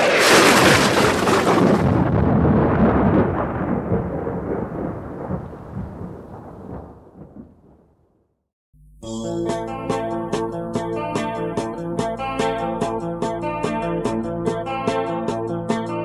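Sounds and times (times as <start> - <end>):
low thunder rumble: 0.0 - 8.3
thunderclap crackle: 0.0 - 8.4.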